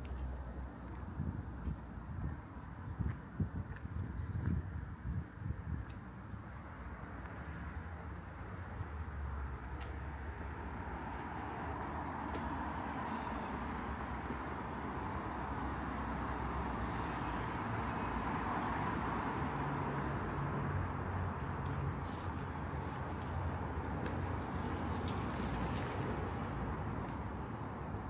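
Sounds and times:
low traffic rumble: 0.0 - 28.0
passing vehicles rushing: 6.8 - 28.0.

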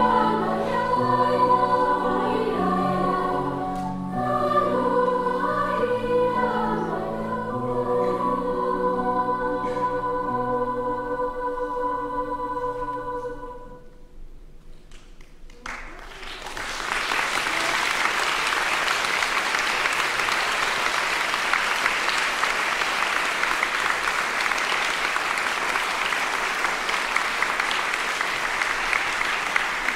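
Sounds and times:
audience applause: 15.5 - 29.9.

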